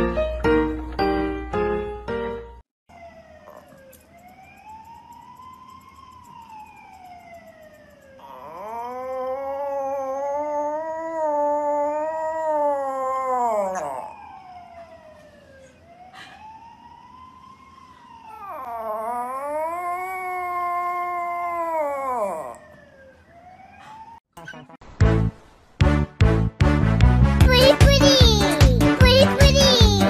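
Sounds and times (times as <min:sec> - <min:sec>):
small dog howling: 0:03.4 - 0:03.9, 0:08.2 - 0:14.6, 0:18.3 - 0:22.8.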